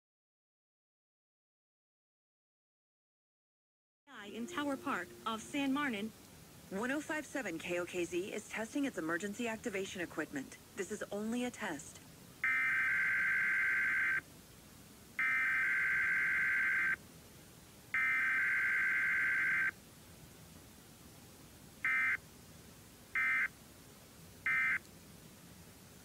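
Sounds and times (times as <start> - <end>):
alternating two-pitch data tones: 4.2 - 6.1.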